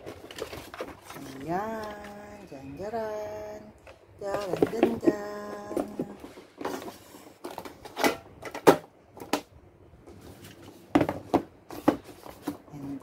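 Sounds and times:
cardboard boxes tapping and rustling: 0.0 - 2.3, 4.2 - 8.0, 10.3 - 12.8.

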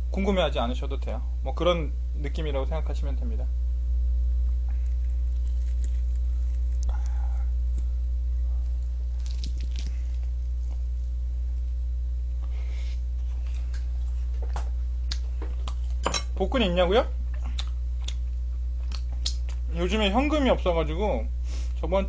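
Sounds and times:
low electrical hum: 0.0 - 22.0
crunching bites: 4.6 - 11.7, 17.4 - 19.6
wet chewing: 4.7 - 7.9, 8.5 - 10.9, 17.3 - 19.6.

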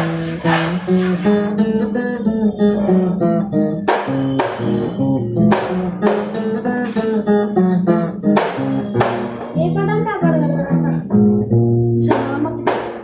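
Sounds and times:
acoustic guitar picking: 0.0 - 13.0
strummed guitar chord: 0.0 - 13.0.

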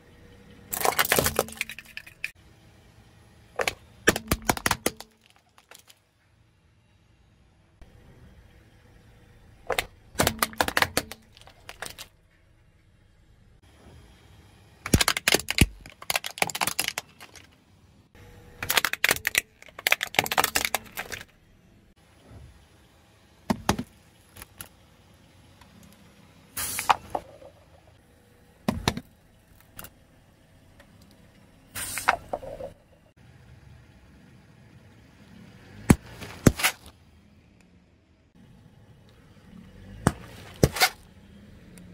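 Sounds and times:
tyre crushing plastic: 0.7 - 2.0, 3.6 - 6.0, 9.7 - 12.1, 14.9 - 17.6, 18.6 - 21.3
sharp plastic cracks: 3.6 - 6.0, 9.7 - 12.2, 14.8 - 17.6, 18.6 - 21.3.

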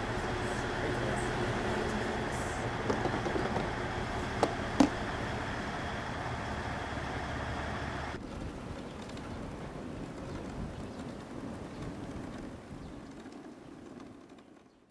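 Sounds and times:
stopped train running: 0.0 - 8.2
steady outdoor noise: 0.0 - 14.9
sharp knocks: 2.8 - 5.0.

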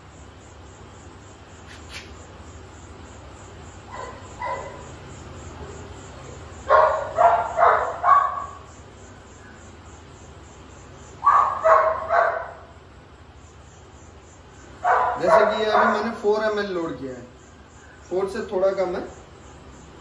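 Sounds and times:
dog barking: 3.9 - 4.9, 6.7 - 8.7, 11.2 - 12.7, 14.8 - 16.2.

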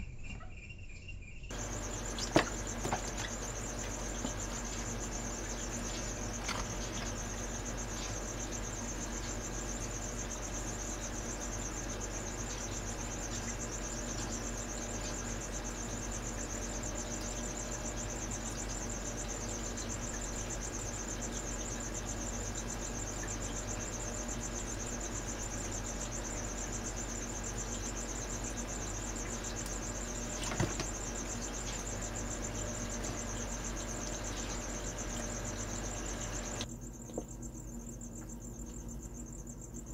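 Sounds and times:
steady low hum: 0.0 - 39.9
high-pitched pulsing chirring: 25.8 - 36.7.

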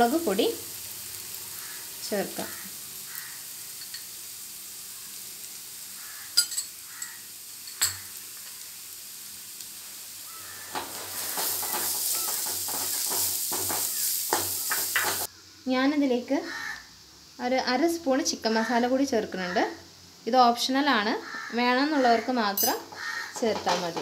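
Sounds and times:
vegetables sizzling in oil: 0.0 - 24.0
wooden spatula scraping pan: 10.6 - 15.3.

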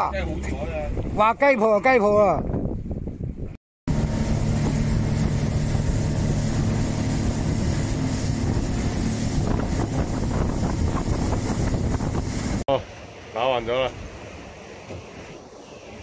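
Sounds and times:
wind buffeting microphone: 0.1 - 1.4, 2.1 - 12.6
motorboat engine humming: 3.9 - 13.2
water rushing and splashing: 3.9 - 16.0.

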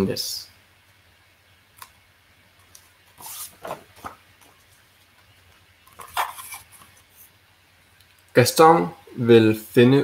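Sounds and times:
book page turning rustle: 2.8 - 4.8, 5.9 - 7.3.

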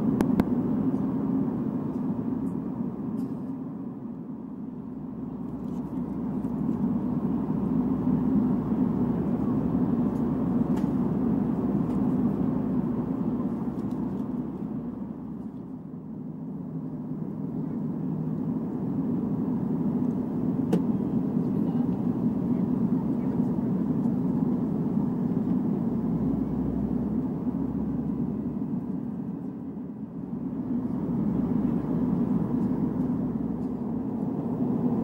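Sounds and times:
aircraft cabin engine drone: 0.0 - 35.0.

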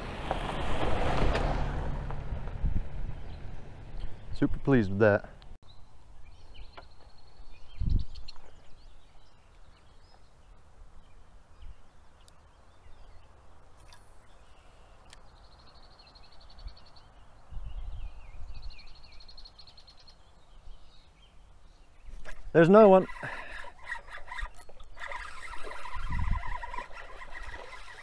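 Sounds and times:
small birds singing: 3.1 - 28.0
high rapid bird trill: 22.6 - 28.0.

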